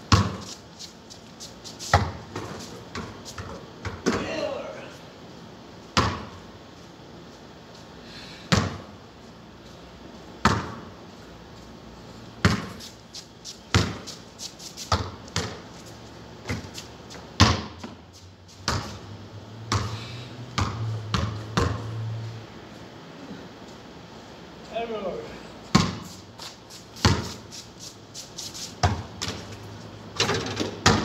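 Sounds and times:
basketball bouncing on concrete: 0.1s - 0.6s, 1.9s - 4.3s, 6.0s - 6.4s, 8.5s - 8.9s, 10.4s - 10.9s, 12.4s - 12.8s, 13.7s - 14.2s, 14.9s - 15.7s, 16.4s - 18.0s, 18.6s - 19.0s, 19.7s - 20.0s, 20.6s - 21.9s, 25.7s - 26.1s, 27.0s - 27.5s, 28.8s - 29.5s, 30.3s - 31.0s.

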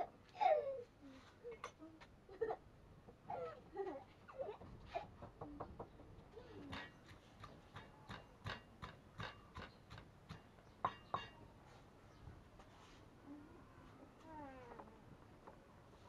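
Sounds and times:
pestle pounding in stone mortar: 6.7s - 11.4s.

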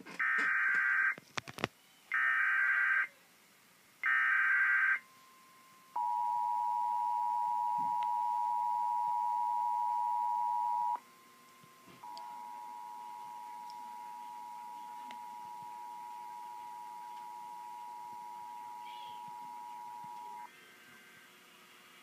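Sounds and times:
data burst tones: 12.0s - 20.5s
two-tone attention signal: 12.0s - 20.5s.

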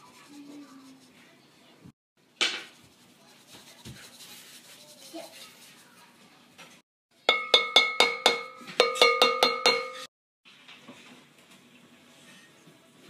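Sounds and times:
spoon clinking on glass bowl: 7.3s - 10.1s.

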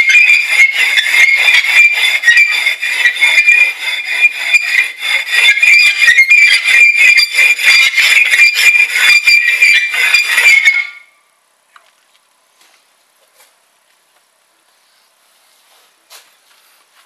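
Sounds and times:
grating scrape on plaster: 0.0s - 11.0s.

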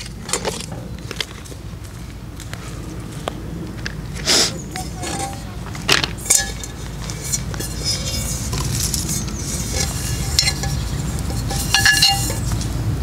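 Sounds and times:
steady low rumble: 0.0s - 13.0s
metal pot scraping: 4.7s - 12.7s
small metallic clinks: 9.8s - 12.6s.

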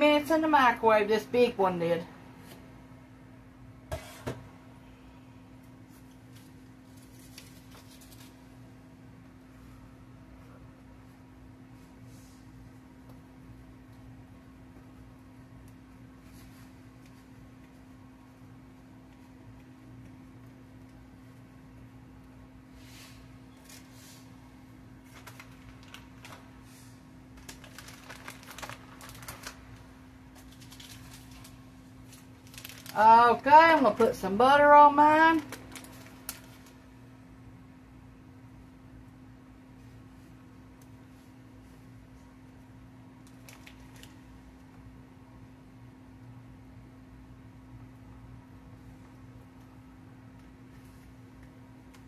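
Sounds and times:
plastic bag crinkling: 6.4s - 8.6s, 24.9s - 34.1s, 35.0s - 36.9s, 43.2s - 44.3s.

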